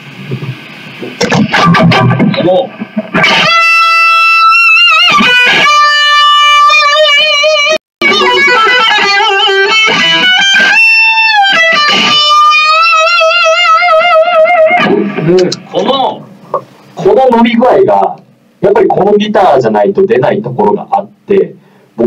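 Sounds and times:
electric guitar sustained notes: 1.2s - 15.6s.

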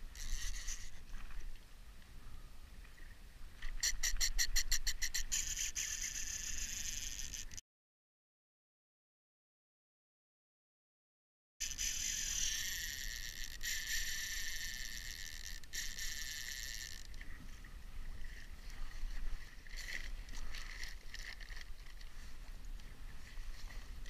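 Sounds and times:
fishing reel rasps: 0.0s - 1.2s, 3.6s - 7.6s, 11.6s - 17.2s
fishing reel whirring: 0.0s - 1.2s, 3.7s - 7.6s, 11.6s - 17.2s
low wind: 0.0s - 7.6s, 11.7s - 24.0s.

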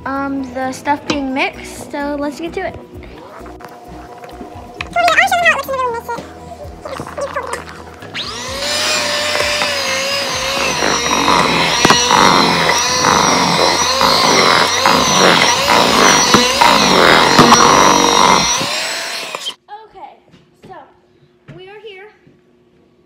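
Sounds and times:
electric hand mixer whisking batter: 6.7s - 19.6s.

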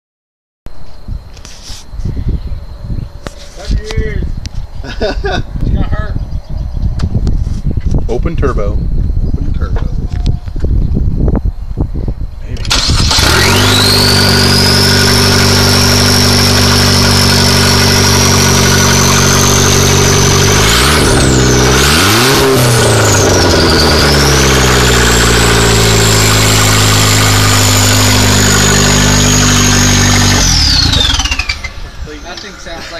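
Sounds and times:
car engine idling and revving: 12.7s - 32.9s
high turbo whistle: 13.0s - 32.3s.

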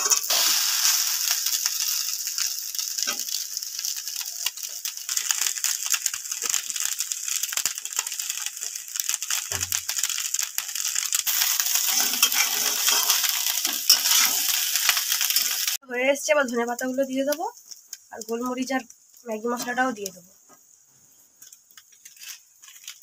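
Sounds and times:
rice sizzling in oil: 0.0s - 23.0s
metal spatula scraping pan: 11.7s - 14.6s.

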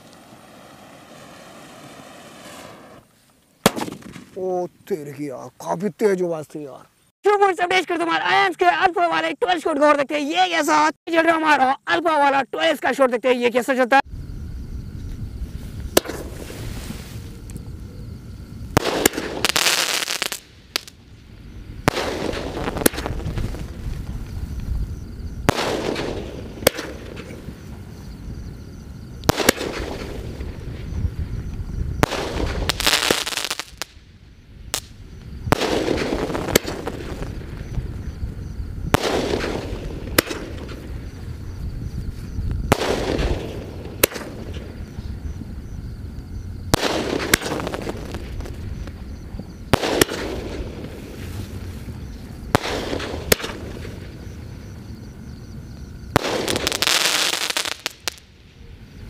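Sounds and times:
firework shots banging: 0.0s - 4.4s, 15.9s - 16.4s, 18.7s - 21.0s, 21.8s - 24.4s, 25.4s - 27.7s, 29.2s - 30.9s, 32.0s - 34.0s, 34.7s - 37.8s, 38.9s - 41.2s, 42.6s - 44.9s, 46.7s - 49.0s, 49.7s - 51.2s, 52.5s - 54.3s, 56.1s - 58.2s
crackling firework bursts: 0.0s - 4.6s, 14.8s - 17.5s, 18.3s - 45.9s, 46.5s - 54.9s, 55.6s - 59.0s.

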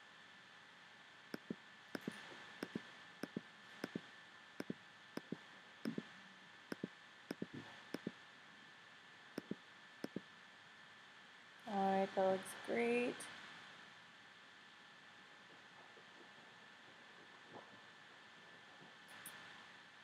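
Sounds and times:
computer mouse clicks: 1.4s - 4.0s, 4.6s - 6.0s, 6.7s - 8.1s, 9.4s - 10.2s.

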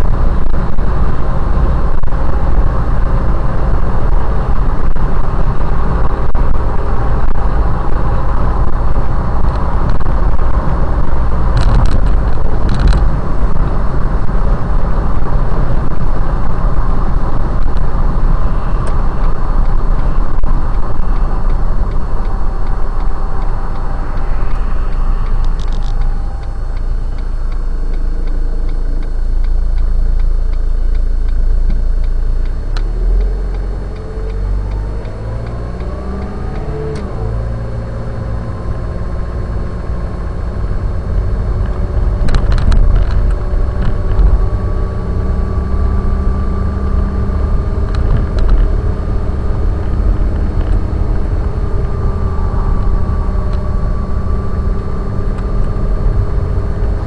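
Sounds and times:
car engine and road rumble: 0.0s - 57.0s.

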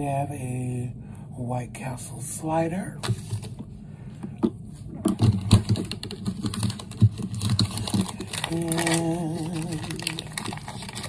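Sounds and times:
man humming: 8.4s - 10.6s.

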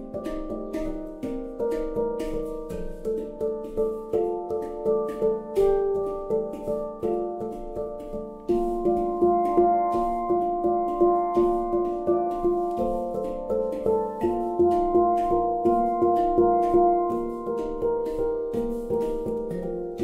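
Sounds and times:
handpans played with mallets: 0.0s - 20.0s.

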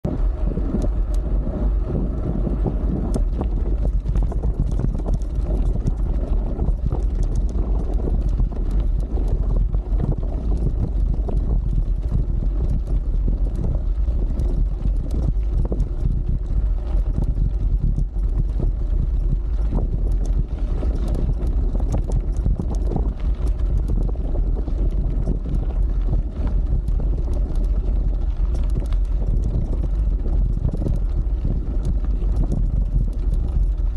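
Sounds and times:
bike rattles and clicks: 0.0s - 33.9s
wind buffeting microphone: 0.0s - 33.9s
tyres rumbling on gravel: 0.1s - 33.9s.

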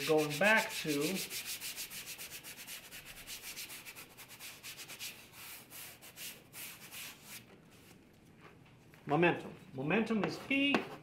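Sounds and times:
hand rubbing a blackboard: 0.0s - 8.0s.

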